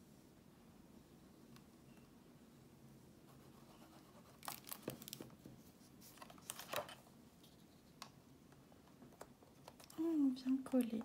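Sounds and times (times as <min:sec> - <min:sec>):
plastic clicks and rustles: 0:08.0 - 0:10.0.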